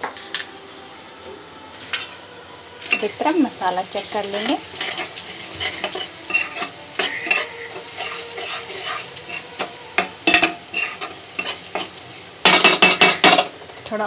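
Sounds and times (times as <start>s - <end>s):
frying sizzle: 0.0s - 14.0s
spatula scraping a pan: 2.8s - 13.5s.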